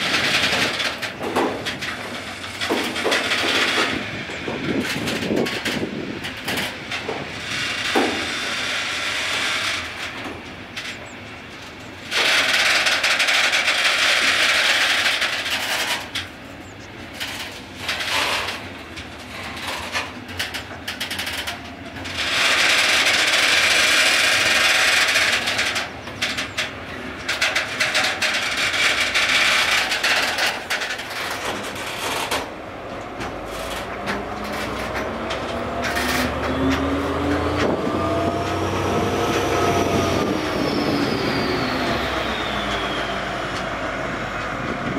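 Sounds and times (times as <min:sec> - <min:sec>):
train wheels on rails: 0:00.0 - 0:44.9
rising engine tone: 0:34.0 - 0:44.9.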